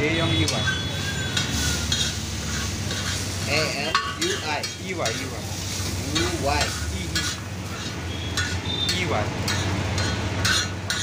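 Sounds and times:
noodles sizzling on a griddle: 0:00.0 - 0:11.0
metal spatula scraping: 0:00.5 - 0:11.0
spatula clicking on griddle: 0:06.1 - 0:11.0.

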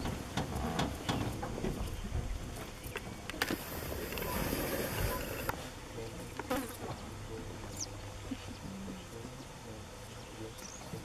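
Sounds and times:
insect buzzing: 0:03.4 - 0:05.6, 0:06.3 - 0:07.0.

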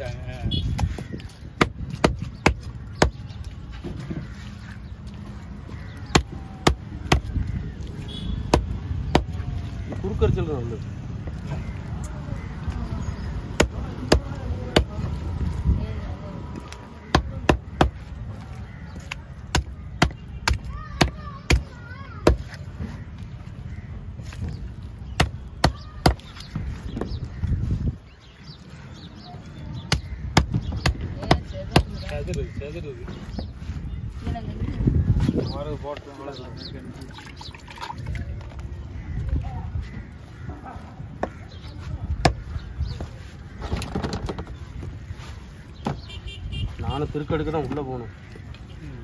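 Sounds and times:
cleaver chopping on wooden block: 0:01.6 - 0:03.2, 0:06.1 - 0:07.3, 0:08.4 - 0:09.4, 0:13.5 - 0:15.0, 0:17.0 - 0:18.0, 0:19.5 - 0:22.6, 0:25.2 - 0:27.1, 0:29.9 - 0:32.0.

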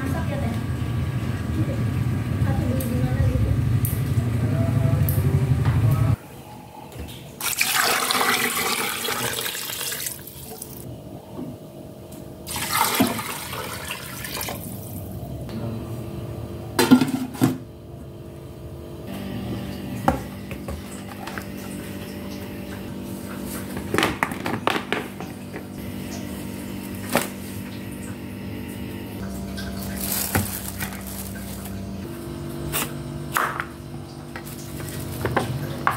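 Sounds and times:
water running into metal pot: 0:07.4 - 0:10.8, 0:12.5 - 0:14.8.

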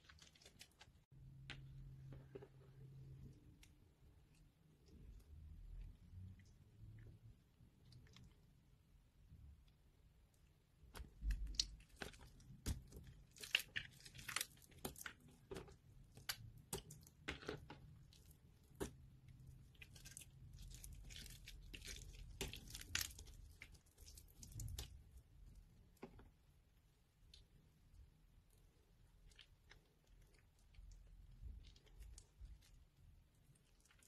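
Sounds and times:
wet soap crunching and tearing: 0:00.0 - 0:01.1, 0:10.9 - 0:26.0.

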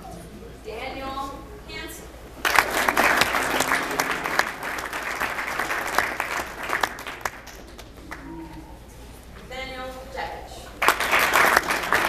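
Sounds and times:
audience clapping: 0:02.4 - 0:08.3, 0:10.8 - 0:12.0.

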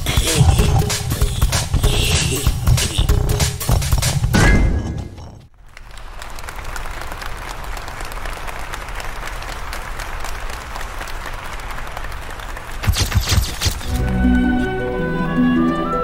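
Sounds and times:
crowd applauding: 0:05.6 - 0:14.2.

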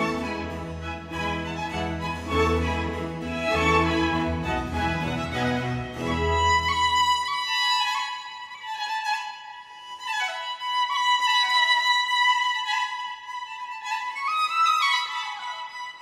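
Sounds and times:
flowing solo melody: 0:00.0 - 0:07.5.

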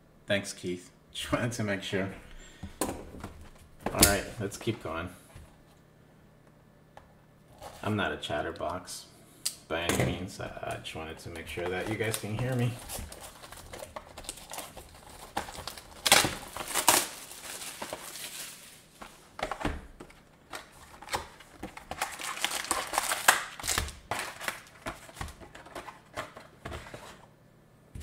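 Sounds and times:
plastic card packs crinkling: 0:03.3 - 0:05.1, 0:10.4 - 0:27.2.

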